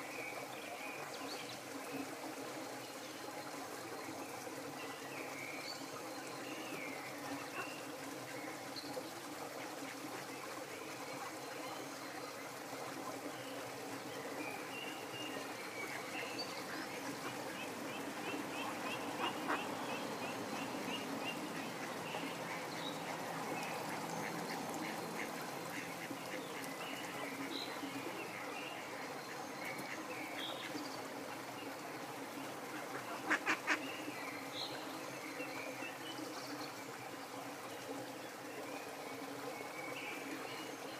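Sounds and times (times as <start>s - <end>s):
flowing water: 0.0s - 40.9s
waterfowl calling: 17.0s - 23.2s.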